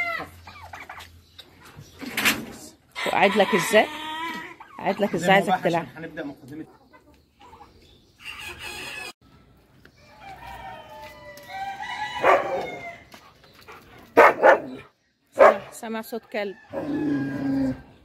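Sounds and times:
rooster crowing: 10.1s - 13.0s, 16.6s - 17.8s.

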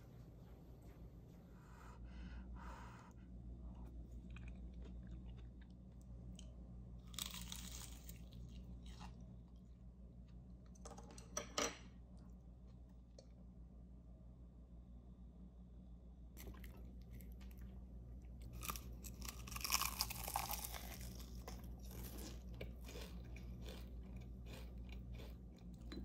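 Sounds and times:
low steady hum: 0.0s - 26.0s
chewing crunchy food: 3.7s - 10.4s, 16.4s - 26.0s.

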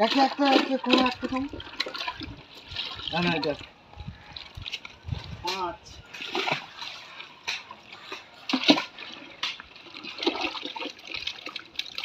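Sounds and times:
water splashing in metal pot: 0.0s - 3.6s.

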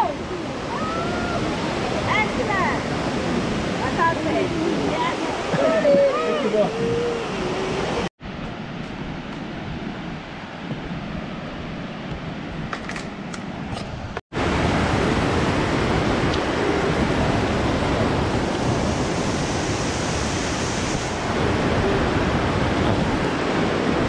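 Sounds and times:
waterfall roaring: 0.0s - 8.1s, 14.4s - 24.0s.

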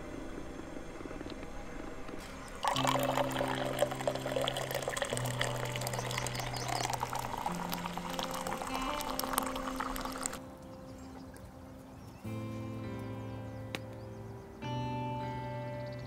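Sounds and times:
background music with low notes: 0.0s - 16.0s
coffee pouring into cups: 2.2s - 10.4s.

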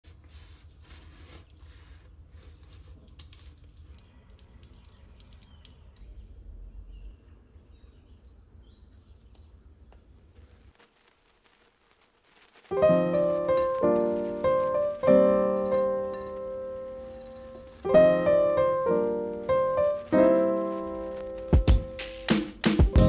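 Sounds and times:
low rumble: 6.0s - 8.1s.

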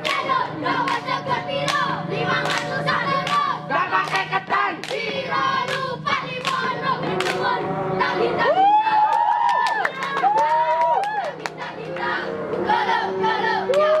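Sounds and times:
hand claps: 0.8s - 1.8s, 2.4s - 5.1s, 5.7s - 7.4s, 9.1s - 12.0s.

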